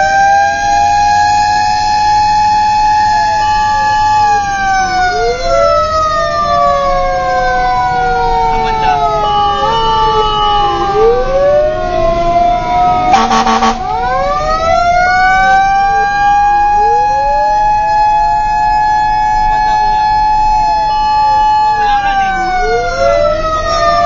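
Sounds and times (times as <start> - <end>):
fire truck siren wailing: 0.0 - 24.0
horn blast: 13.1 - 14.0.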